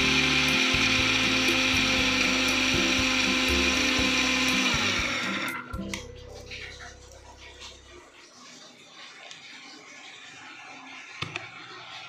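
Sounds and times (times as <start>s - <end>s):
mixer grinder motor whine: 0.0s - 6.0s
background music: 0.0s - 8.0s.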